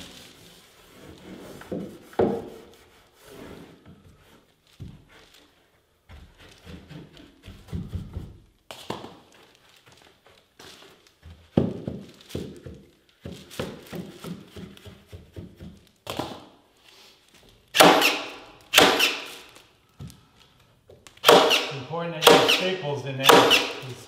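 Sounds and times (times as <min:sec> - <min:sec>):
staple gun firing: 0:17.8 - 0:19.3.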